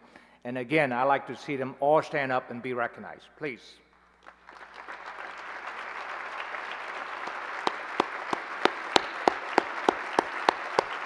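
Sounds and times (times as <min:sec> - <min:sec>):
close sharp hand claps: 0:03.9 - 0:11.0
audience applause: 0:04.2 - 0:11.0.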